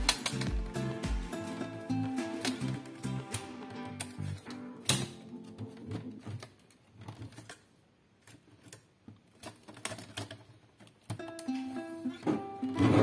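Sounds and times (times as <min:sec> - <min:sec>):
faint background music: 0:00.0 - 0:06.5, 0:11.1 - 0:13.0.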